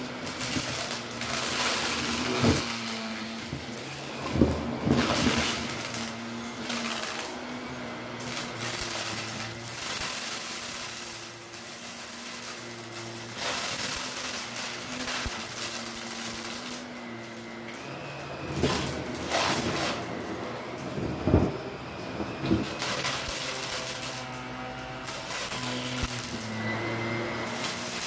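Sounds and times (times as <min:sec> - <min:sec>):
vacuum cleaner running on carpet: 0:00.0 - 0:28.0
vacuum sucking up debris rattling: 0:00.0 - 0:28.0.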